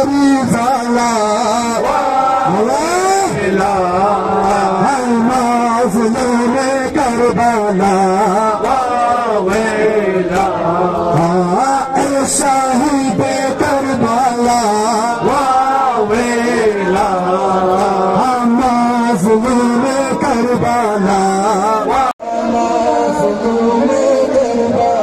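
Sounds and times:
men chanting a lament: 0.0s - 25.0s
rhythmic chest-beating slaps: 3.5s - 12.4s.

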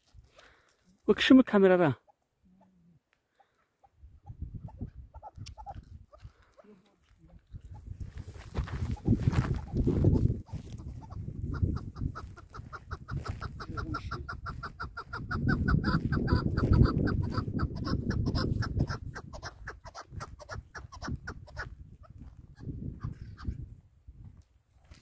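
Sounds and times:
partridge clucking calls: 2.0s - 7.9s, 8.8s - 23.6s.

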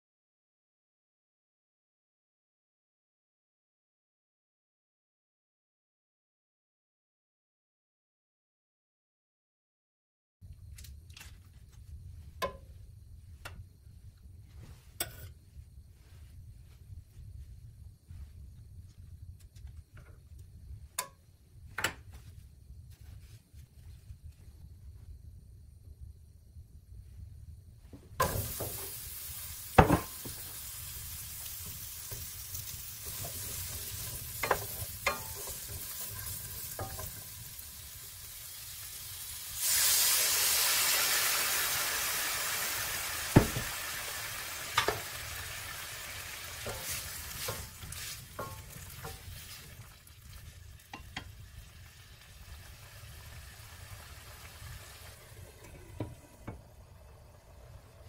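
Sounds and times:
butter sizzling in a skillet: 28.2s - 58.0s
peppers sizzling in fat: 28.2s - 58.0s
utensil knocking on pan: 43.4s - 43.7s.

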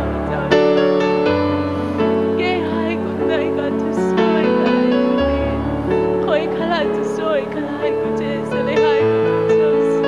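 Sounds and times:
keyboard sustained chords: 0.0s - 10.0s
wavering vocal lines: 2.2s - 10.0s.

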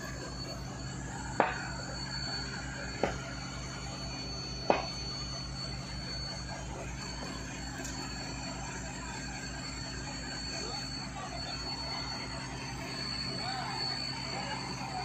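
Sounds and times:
diesel engine throbbing: 0.0s - 15.0s
pile hammer striking timber: 4.7s - 4.9s.

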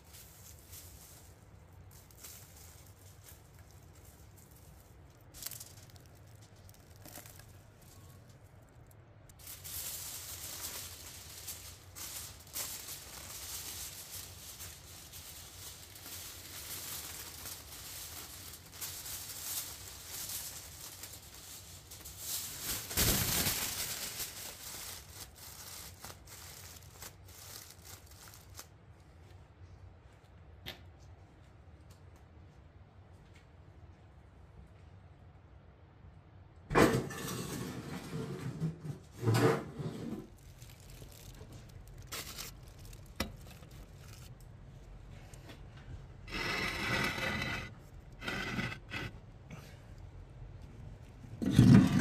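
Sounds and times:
aluminium foil crinkling: 0.0s - 29.2s, 40.2s - 49.1s.

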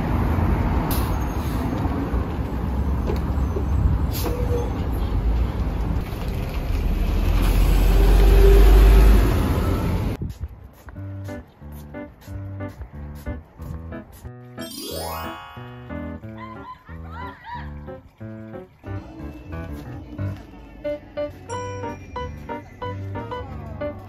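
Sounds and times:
bus engine rumbling: 0.0s - 10.3s, 18.8s - 24.0s.

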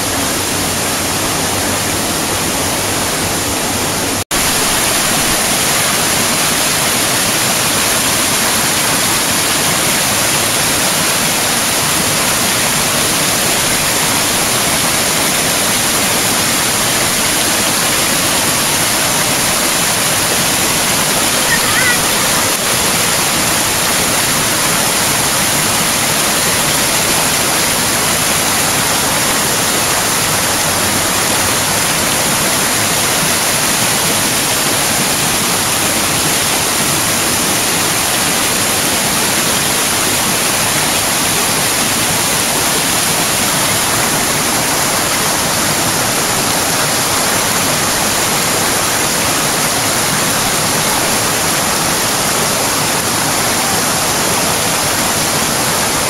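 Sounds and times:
water rushing over rocks: 0.0s - 56.0s.

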